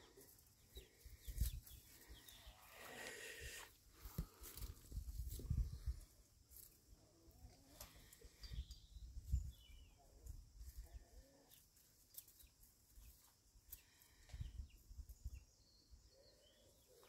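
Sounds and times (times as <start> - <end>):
faint bird calls: 0.0 - 4.4.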